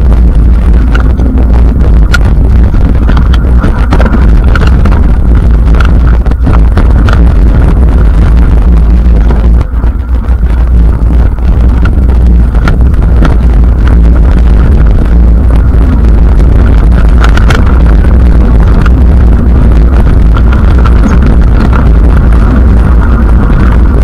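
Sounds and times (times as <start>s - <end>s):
bike clicking and rattling: 0.0s - 24.0s
wind buffeting microphone: 0.0s - 24.0s.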